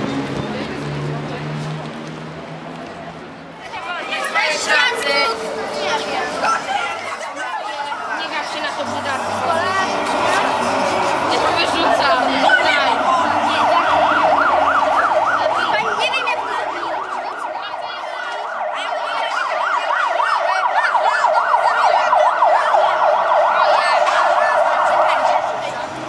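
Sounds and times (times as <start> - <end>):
siren yelping: 4.2 - 25.7.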